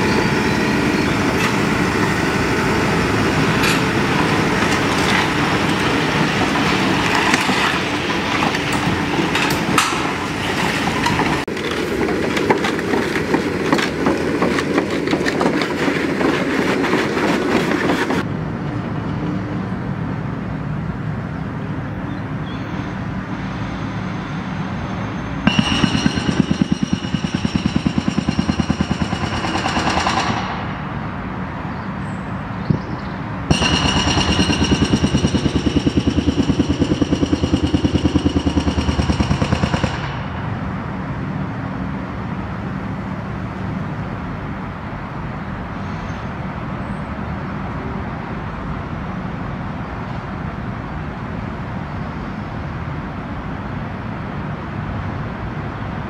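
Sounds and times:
excavator engine running: 0.0s - 18.3s, 33.5s - 41.5s
hydraulic breaker hammering concrete: 25.4s - 31.0s, 33.5s - 40.6s.

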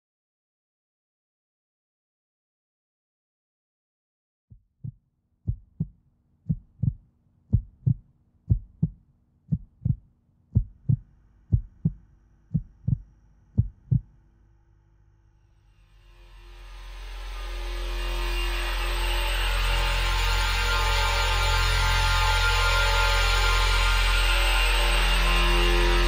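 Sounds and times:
heartbeat thumps: 4.5s - 13.0s, 13.6s - 14.1s.

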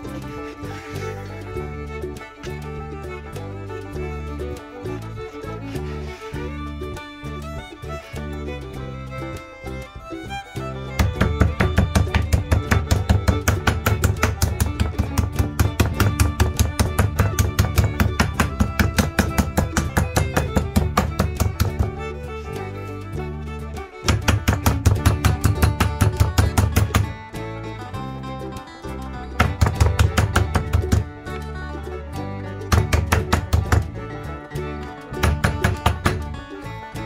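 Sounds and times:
background music: 0.0s - 37.0s
meat tenderizer pounding steaks: 11.0s - 21.9s, 24.1s - 27.1s, 29.4s - 31.1s, 32.7s - 33.9s, 35.2s - 36.3s.

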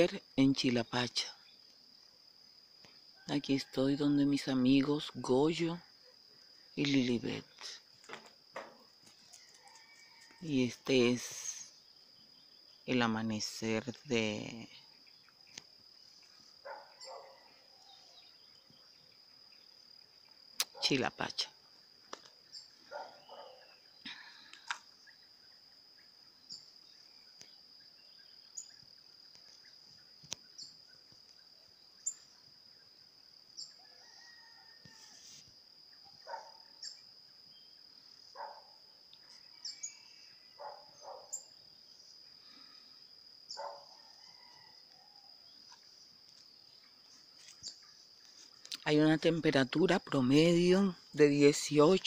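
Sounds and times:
crickets trilling: 0.0s - 52.0s
bird calls and chirps: 22.2s - 35.2s, 36.0s - 42.2s, 43.5s - 48.7s.

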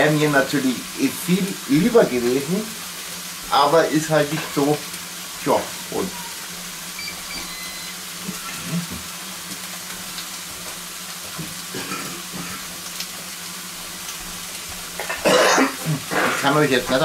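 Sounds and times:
food sizzling in a pan: 0.0s - 17.0s.

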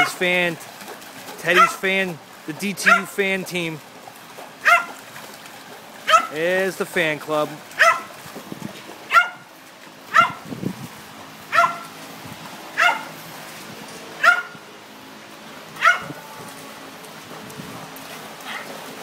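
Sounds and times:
dog barking: 1.6s - 1.8s, 2.9s - 3.1s, 4.6s - 5.0s, 6.1s - 6.4s, 7.8s - 8.1s, 9.1s - 9.4s, 10.1s - 10.4s, 11.5s - 11.9s, 12.8s - 13.1s, 14.2s - 14.6s, 15.8s - 16.2s, 18.4s - 18.7s.

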